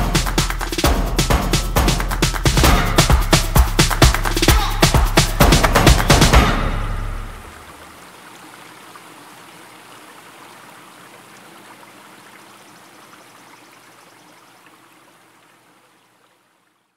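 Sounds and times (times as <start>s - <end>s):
music: 0.0s - 7.5s
gentle flowing water: 3.3s - 16.9s.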